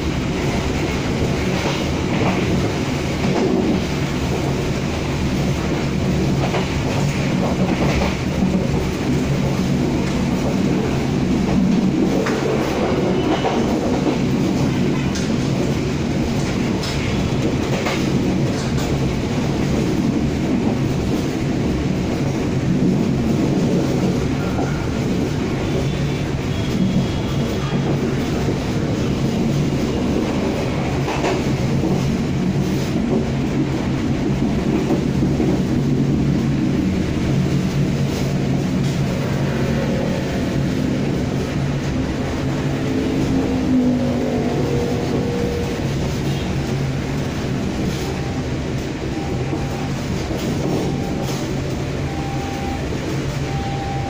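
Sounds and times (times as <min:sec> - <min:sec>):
rumble of wheels on rail: 0:00.0 - 0:54.0.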